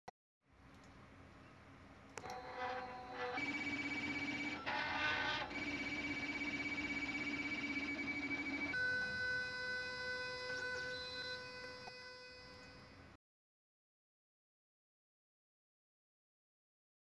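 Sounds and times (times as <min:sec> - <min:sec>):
steady electronic tones: 0:02.2 - 0:13.1.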